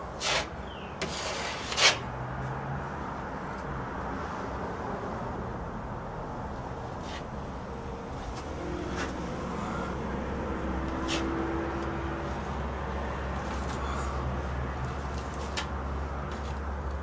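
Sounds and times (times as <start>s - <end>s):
road traffic rumble: 0.0s - 17.0s
putty knife scraping: 0.2s - 2.1s.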